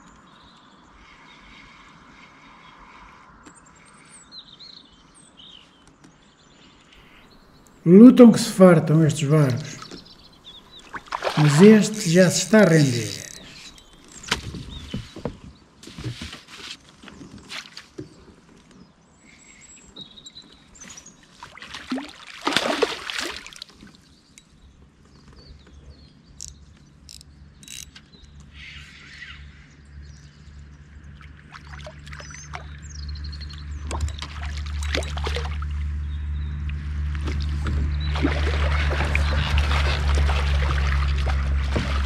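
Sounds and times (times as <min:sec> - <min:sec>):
small birds chirping: 0:08.8 - 0:15.3
water splashing and trickling: 0:09.4 - 0:14.6, 0:20.9 - 0:24.1, 0:31.0 - 0:42.0.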